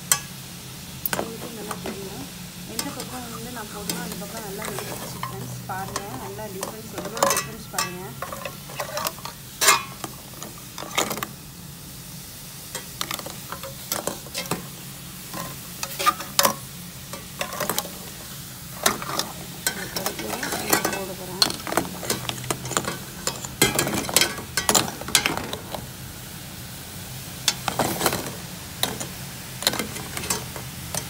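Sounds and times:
water boiling in a pot: 0.0 - 31.0
metal tongs clinking against pot: 2.7 - 11.3, 12.7 - 14.7, 15.3 - 18.2, 18.8 - 25.6, 27.5 - 31.0.

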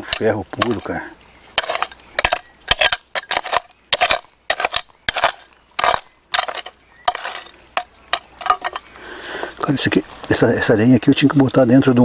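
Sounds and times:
blade clinking on stones: 0.0 - 8.9
gritty scrape of hoe: 0.0 - 8.9
hand hoe striking earth: 0.0 - 8.9.

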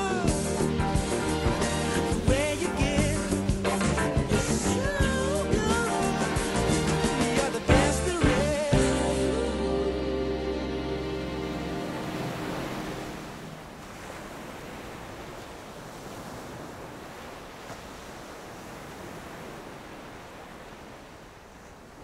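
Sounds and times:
music: 0.0 - 13.5
ocean surf breaking: 0.0 - 22.0.

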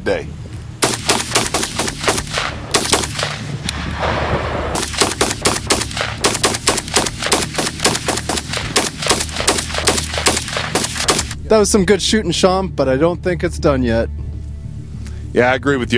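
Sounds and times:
rapid pistol gunshots: 0.8 - 3.5, 4.2 - 11.4.

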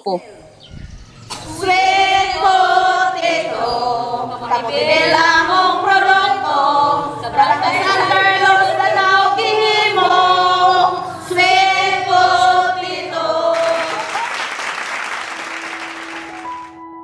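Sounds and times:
group singing in unison: 0.4 - 14.5
clapping and cheering: 13.4 - 16.8.

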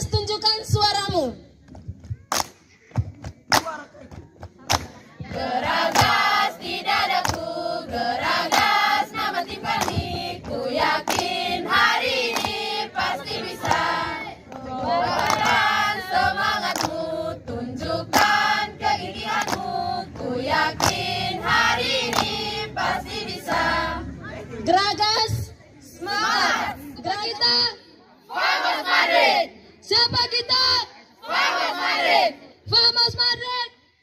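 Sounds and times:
young choir singing: 5.2 - 24.1, 26.0 - 26.8, 28.3 - 29.5, 31.2 - 32.4.

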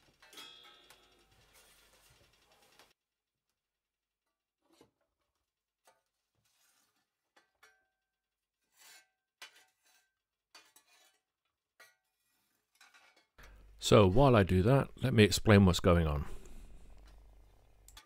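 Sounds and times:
metal tool scraping masonry: 6.4 - 13.6.

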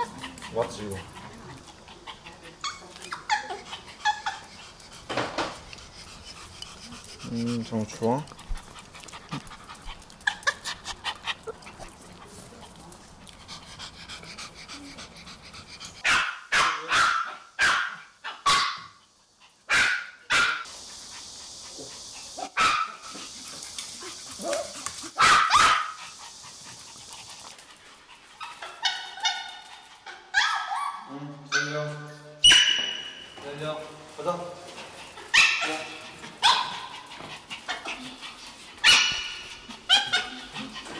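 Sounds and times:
small dogs barking: 16.0 - 19.0, 19.7 - 20.7, 21.9 - 27.0, 28.4 - 31.8, 32.4 - 33.2, 35.3 - 38.2, 38.8 - 40.9.

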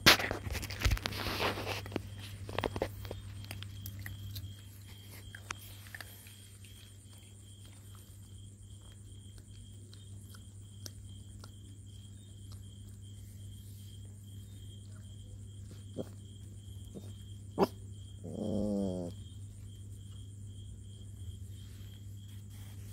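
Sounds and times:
puppies chewing and smacking: 0.3 - 17.4
puppy whining: 16.9 - 19.2.

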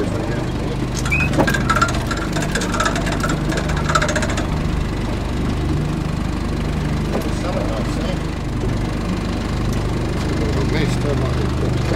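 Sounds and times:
boat engine idling: 0.0 - 11.9
rapid clicking rattle: 0.9 - 6.0.

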